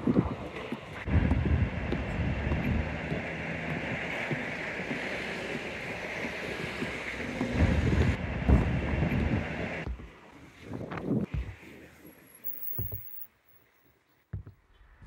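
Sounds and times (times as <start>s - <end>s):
traffic rushing: 0.0s - 10.2s
wind buffeting microphone: 0.0s - 11.4s.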